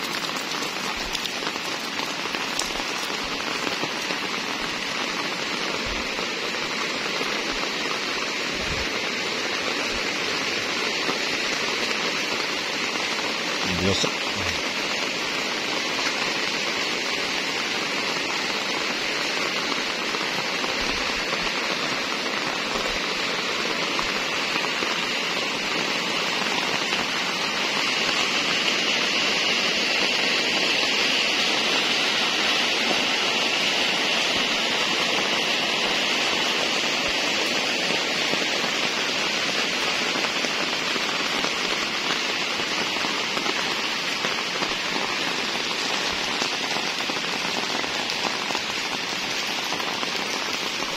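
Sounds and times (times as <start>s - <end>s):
rain on wet pavement: 0.0s - 50.9s.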